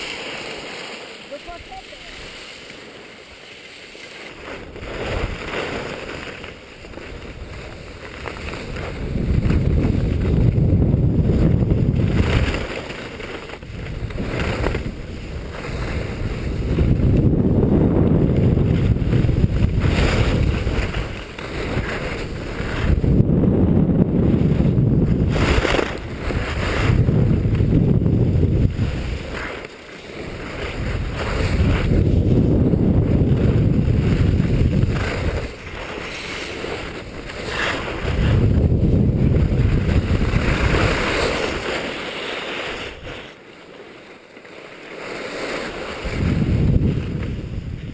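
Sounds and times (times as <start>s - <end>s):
skis scraping on snow: 0.0s - 47.9s
wind buffeting microphone: 6.8s - 12.8s, 13.6s - 29.6s, 30.2s - 41.7s, 46.0s - 47.9s.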